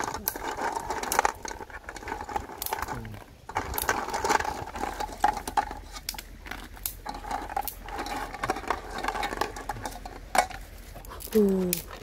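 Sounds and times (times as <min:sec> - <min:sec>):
snail shells knocking in metal pot: 0:06.8 - 0:10.6.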